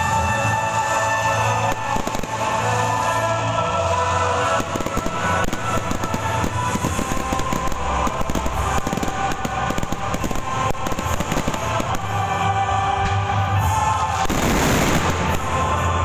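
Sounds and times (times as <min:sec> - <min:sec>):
loud background music: 0:00.0 - 0:16.0
fireworks bangs and pops: 0:01.6 - 0:02.7, 0:04.4 - 0:12.3, 0:14.2 - 0:15.8.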